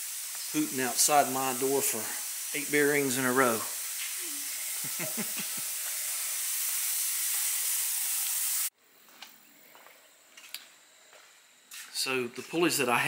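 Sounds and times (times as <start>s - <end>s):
ultrasonic cleaner hissing: 0.0s - 8.7s.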